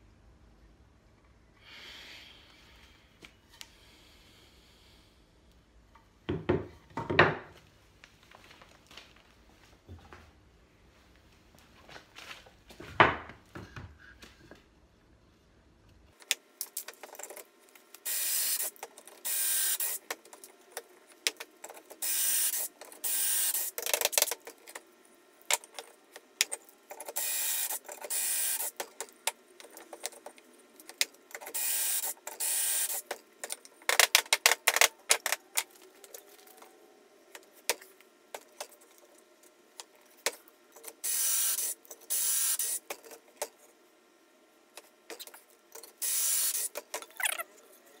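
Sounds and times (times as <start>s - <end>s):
drill boring into wood: 27.2s - 28.7s, 31.6s - 33.0s, 41.1s - 42.8s, 46.0s - 46.7s.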